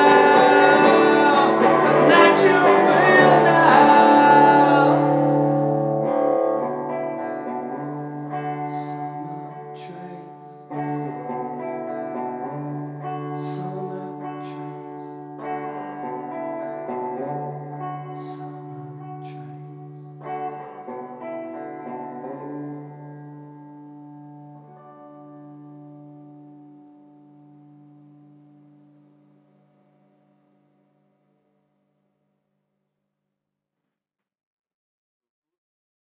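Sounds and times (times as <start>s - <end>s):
man singing: 0.0s - 5.8s, 8.6s - 11.5s, 13.4s - 15.1s
electric guitar chords: 0.0s - 30.8s.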